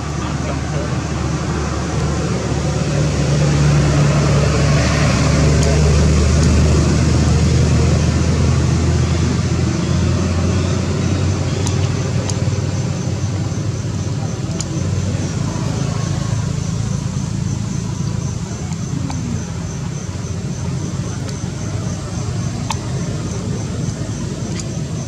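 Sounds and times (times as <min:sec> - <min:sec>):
broad rush of noise: 0:00.0 - 0:25.0
engine humming: 0:00.0 - 0:25.0
faint clicks: 0:22.6 - 0:22.9, 0:24.5 - 0:24.8.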